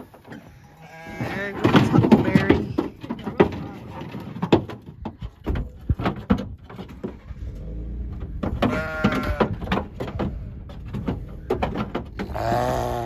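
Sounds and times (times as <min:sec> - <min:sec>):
sheep bleating: 0:00.7 - 0:01.6, 0:08.7 - 0:09.5
wooden crate knocking and clattering: 0:01.1 - 0:07.3, 0:08.1 - 0:13.0.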